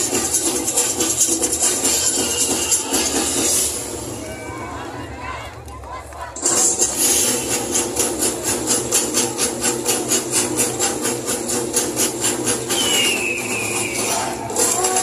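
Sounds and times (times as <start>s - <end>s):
percussion dance music: 0.0s - 15.0s
shaker or tambourine: 6.4s - 15.0s.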